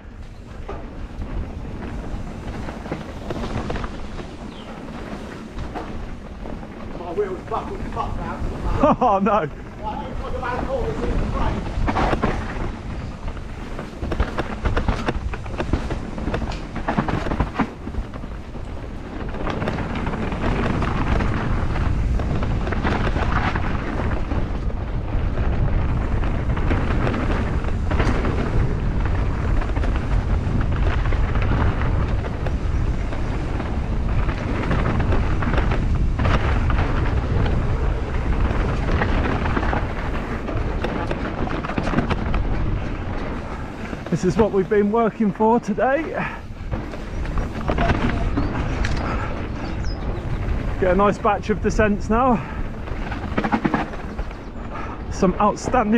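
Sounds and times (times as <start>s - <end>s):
bike knocks and rattles: 0.0s - 55.9s
bike rumbling over rough trail: 0.0s - 55.9s
wind on microphone: 0.0s - 55.9s.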